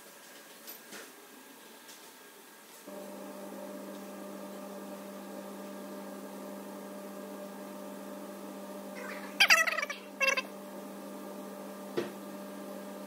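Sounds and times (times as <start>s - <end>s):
machine hum: 2.9s - 13.0s.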